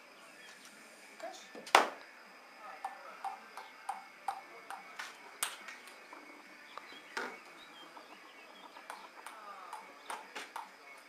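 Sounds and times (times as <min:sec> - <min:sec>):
faint bird chirping: 0:00.0 - 0:01.5, 0:02.6 - 0:11.0.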